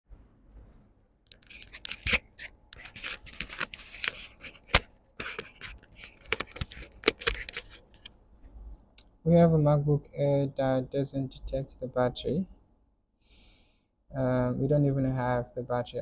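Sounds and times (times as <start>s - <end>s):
rustling and scraping handling noise: 0.6s - 8.6s.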